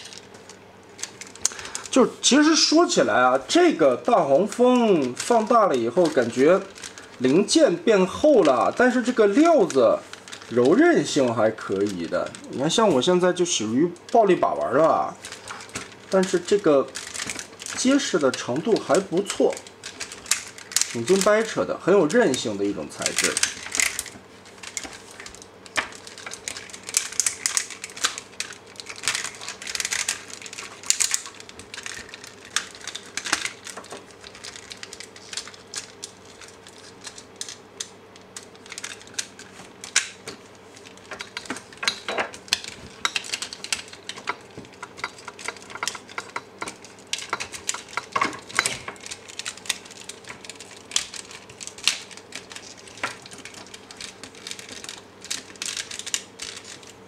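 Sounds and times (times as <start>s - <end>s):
plastic toy parts clicking and clacking: 14.0s - 57.0s.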